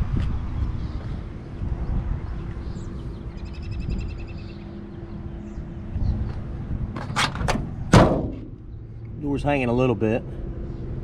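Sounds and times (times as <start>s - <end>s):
bird chirping trill: 2.2s - 6.3s.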